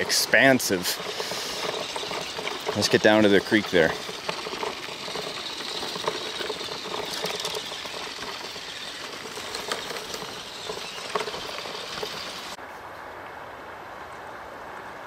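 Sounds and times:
sharp crackles: 0:00.0 - 0:12.6
toy truck motor and gears whining: 0:00.0 - 0:12.6.

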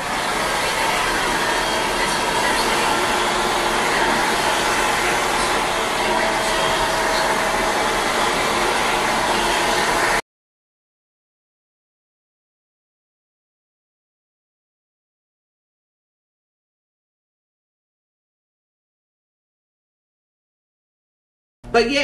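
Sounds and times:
blow dryer running: 0:00.0 - 0:10.2.

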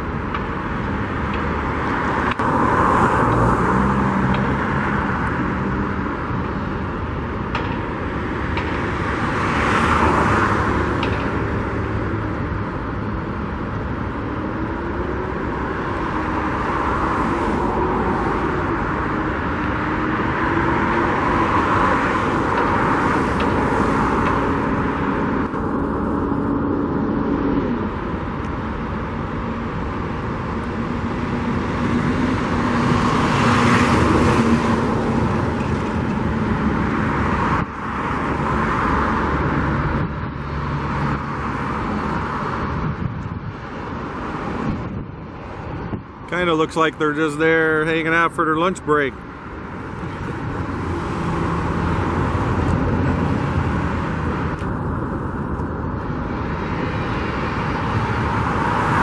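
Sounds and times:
road traffic hum: 0:00.0 - 0:59.0
vehicles passing: 0:00.0 - 0:59.0
engine note rising and falling: 0:14.9 - 0:37.7.

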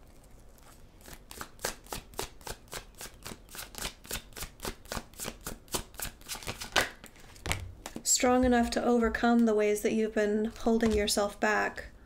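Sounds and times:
cards being shuffled: 0:00.0 - 0:08.7.

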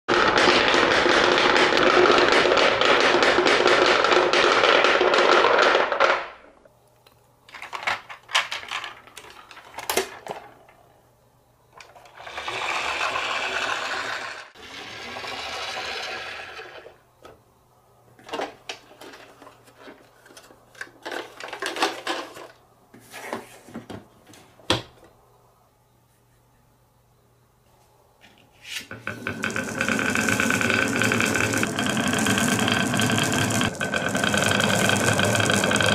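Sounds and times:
toys knocking and clicking: 0:00.1 - 0:06.2, 0:28.9 - 0:35.9.

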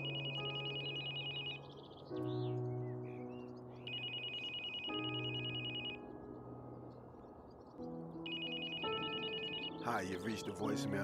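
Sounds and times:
telephone ringing: 0:00.0 - 0:02.0, 0:03.9 - 0:06.1, 0:08.2 - 0:11.0.

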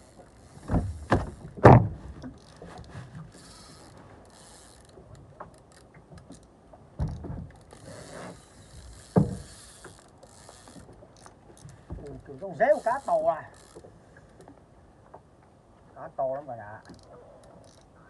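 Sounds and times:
fishing reel ratcheting: 0:02.4 - 0:06.5, 0:07.1 - 0:13.9, 0:16.8 - 0:17.9.

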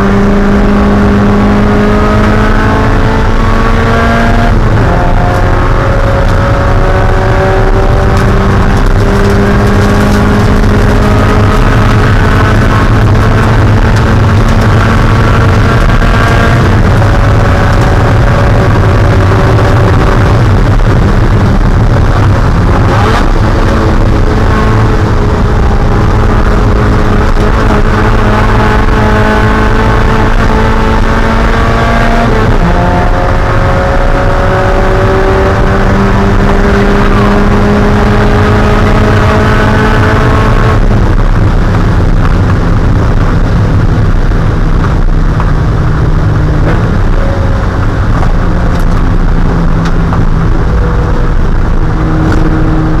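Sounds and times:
car engine revving: 0:00.0 - 0:53.0
road and wind noise: 0:00.0 - 0:53.0.

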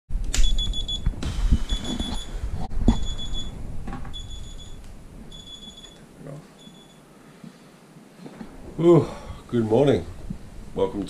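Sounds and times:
phone alarm beeping: 0:00.4 - 0:01.0, 0:01.7 - 0:06.0, 0:06.6 - 0:07.0.

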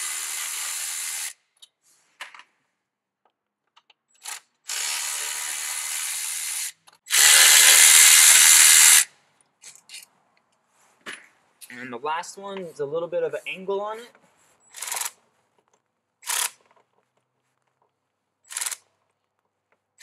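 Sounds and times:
electric ratchet running: 0:00.0 - 0:01.4, 0:04.2 - 0:09.1, 0:14.7 - 0:15.2, 0:16.2 - 0:16.6, 0:18.5 - 0:18.8.

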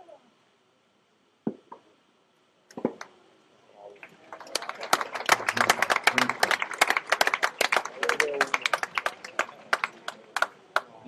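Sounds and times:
spectators clapping: 0:04.0 - 0:11.0.

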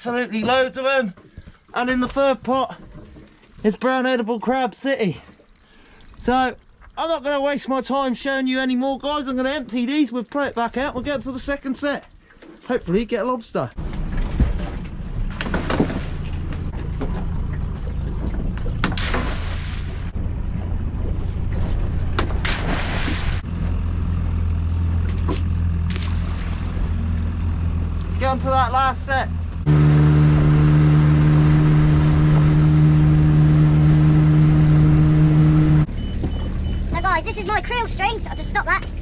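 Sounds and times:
wind: 0:00.0 - 0:39.0
boat wake rushing: 0:13.7 - 0:39.0
outboard motor idling: 0:13.8 - 0:18.9, 0:23.4 - 0:39.0.

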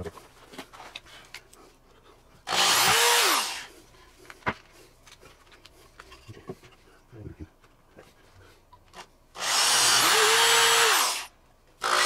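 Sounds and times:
cordless drill running: 0:02.5 - 0:03.7, 0:09.4 - 0:12.0.

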